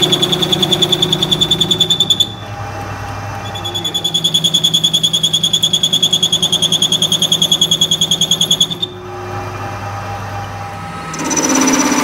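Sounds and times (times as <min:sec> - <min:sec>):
lathe tool squealing: 0:00.0 - 0:12.0
low hum of lathe: 0:08.8 - 0:12.0.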